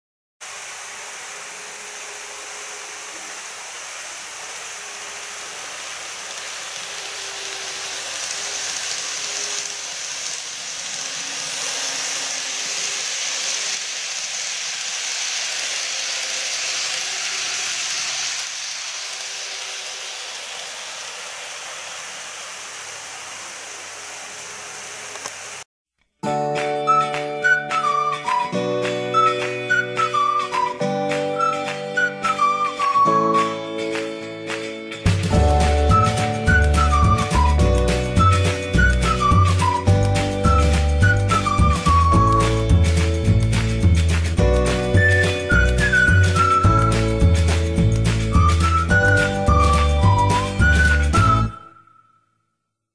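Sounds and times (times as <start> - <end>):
model train wheels hissing on rails: 0.4 - 25.6
faint motor hum: 0.5 - 13.3.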